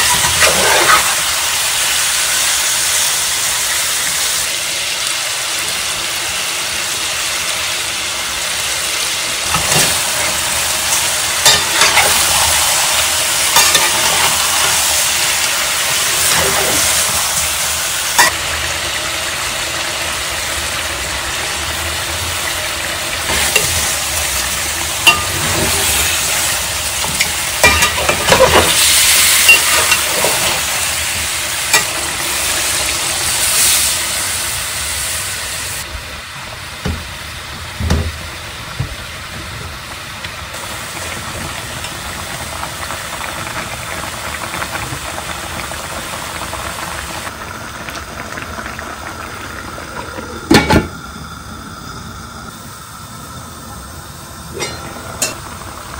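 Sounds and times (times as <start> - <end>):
chicken sizzling in oil: 0.0 - 55.9
spoon scraping a metal pan: 11.4 - 12.8.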